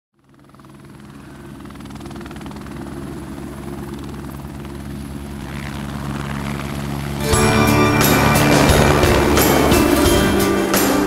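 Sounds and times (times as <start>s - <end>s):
helicopter rotor beat: 0.2s - 11.0s
low engine drone: 5.3s - 11.0s.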